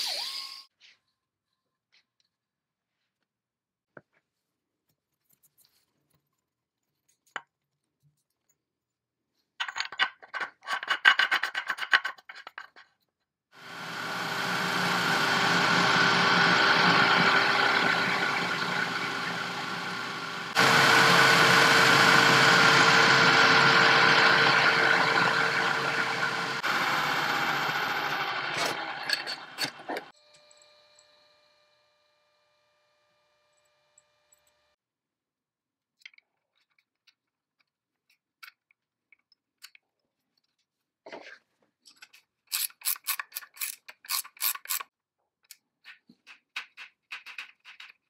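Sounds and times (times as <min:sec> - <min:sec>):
power tool grinding: 0:13.6 - 0:30.1.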